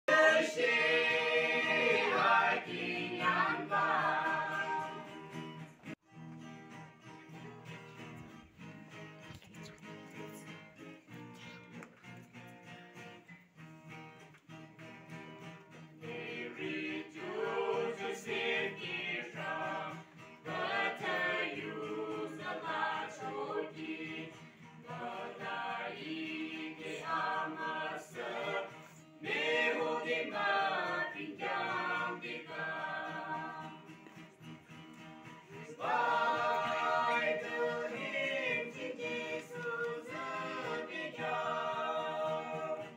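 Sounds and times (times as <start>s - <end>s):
vocal group singing a hymn: 0.0s - 5.6s, 16.0s - 34.1s, 35.3s - 42.9s
acoustic guitar: 0.1s - 42.9s.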